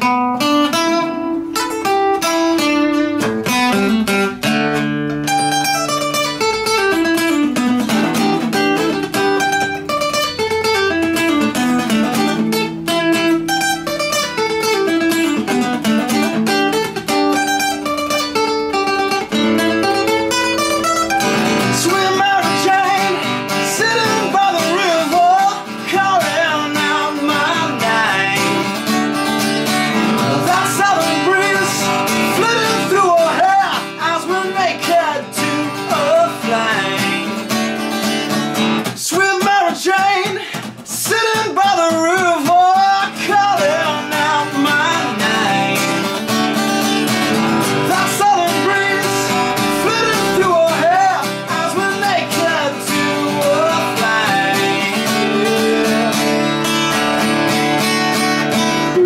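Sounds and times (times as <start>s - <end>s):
acoustic guitar picking: 0.0s - 59.0s
man singing: 19.3s - 37.7s, 38.8s - 57.4s.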